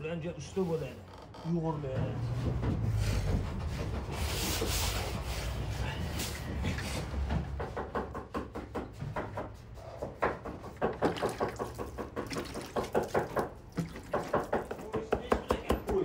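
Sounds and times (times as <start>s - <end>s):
cleaver chopping on wooden board: 7.7s - 16.0s.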